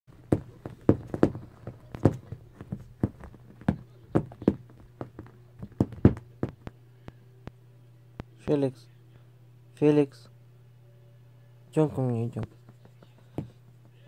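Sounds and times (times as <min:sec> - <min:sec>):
cat pawing and scratching couch: 0:00.1 - 0:06.7
low steady hum: 0:00.1 - 0:14.0.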